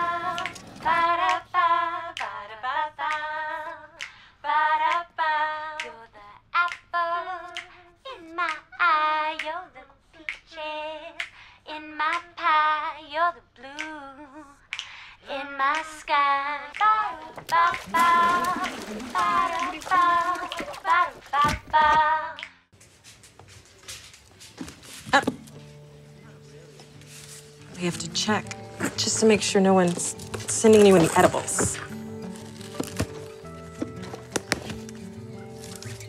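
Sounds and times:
woman singing alone: 15.2s - 22.4s.

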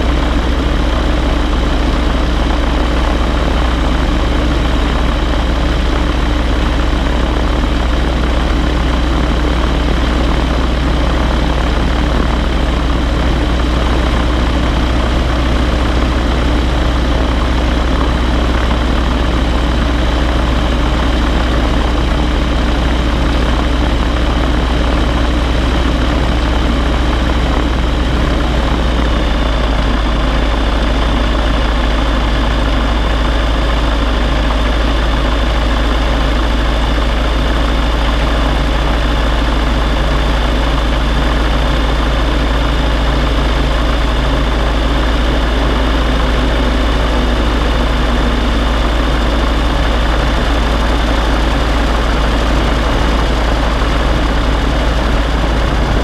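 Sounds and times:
gyrocopter engine and propeller: 0.0s - 56.0s.

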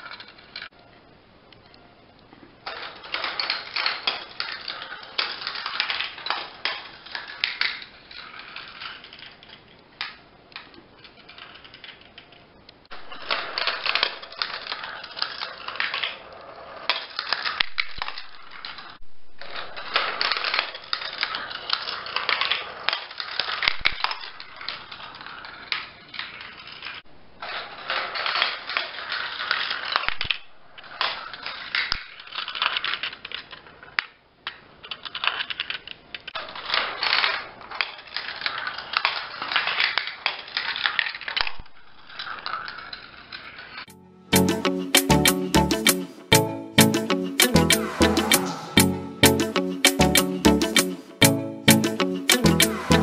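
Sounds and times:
marbles clattering through track: 0.0s - 0.8s, 2.6s - 43.9s.

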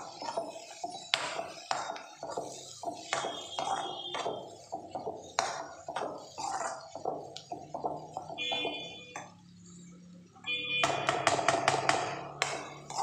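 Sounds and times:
metal spatula scraping metal pan: 0.0s - 9.8s, 12.2s - 13.0s.

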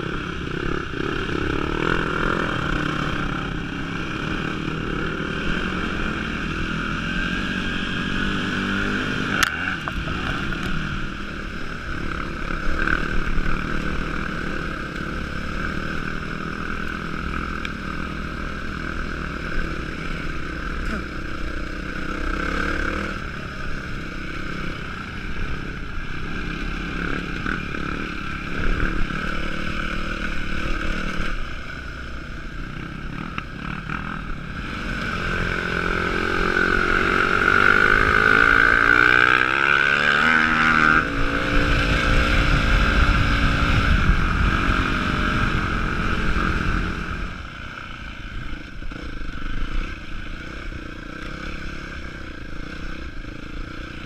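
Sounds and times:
motorbike engines running: 0.0s - 54.0s
wind over camera: 40.9s - 50.4s.

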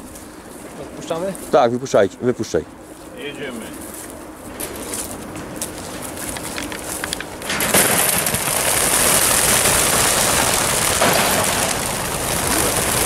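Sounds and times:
pigeon wingbeats clattering: 4.5s - 13.0s
crates clicking and rattling: 6.2s - 13.0s.

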